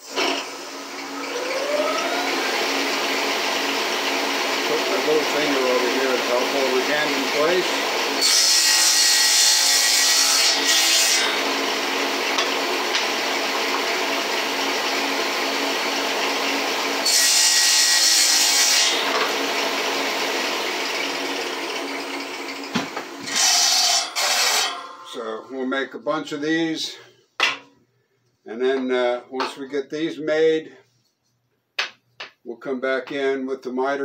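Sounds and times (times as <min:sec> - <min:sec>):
table saw cutting wood: 0:00.0 - 0:25.2.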